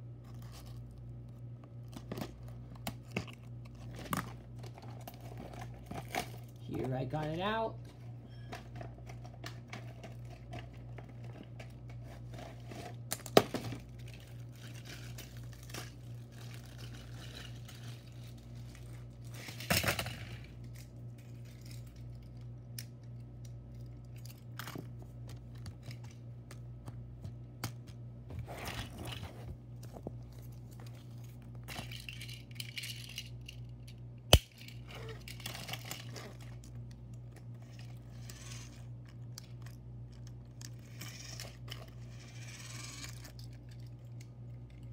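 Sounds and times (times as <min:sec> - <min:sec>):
cardboard and plastic rustling: 0:00.0 - 0:07.3, 0:07.9 - 0:22.4, 0:23.9 - 0:32.8
steady low hum: 0:00.0 - 0:44.9.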